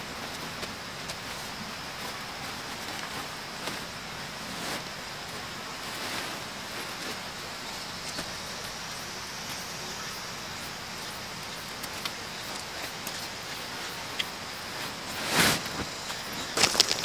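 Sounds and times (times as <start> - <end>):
steady high hiss: 0.0 - 17.0
fabric rustling: 14.6 - 17.0.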